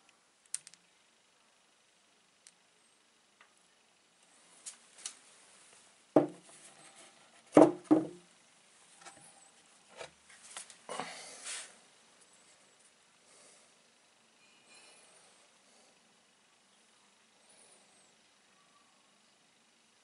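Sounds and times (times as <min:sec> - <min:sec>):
stones knocking on wooden table: 0:06.2 - 0:06.4, 0:07.6 - 0:08.2.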